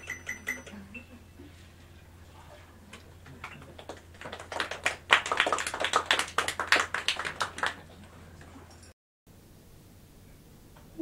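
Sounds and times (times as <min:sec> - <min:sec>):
audience applause: 0:03.3 - 0:08.1.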